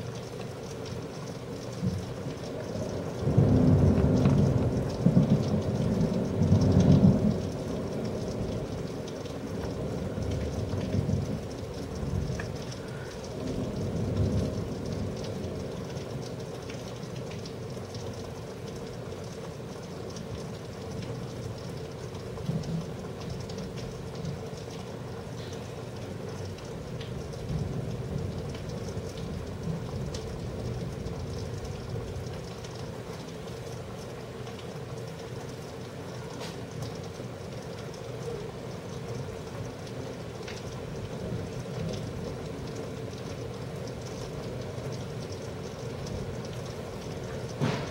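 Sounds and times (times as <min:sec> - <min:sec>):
steady rain falling: 0:00.0 - 0:47.9
low thunder rumble: 0:02.9 - 0:08.9
drips and taps: 0:04.0 - 0:47.9.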